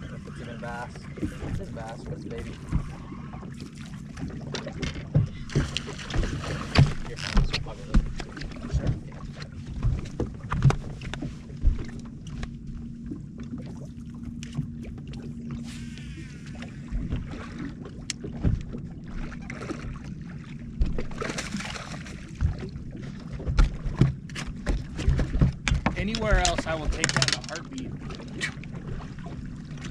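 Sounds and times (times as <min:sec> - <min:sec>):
waves lapping against boat hull: 0:00.0 - 0:29.9
water splash: 0:03.6 - 0:09.2, 0:20.8 - 0:22.7.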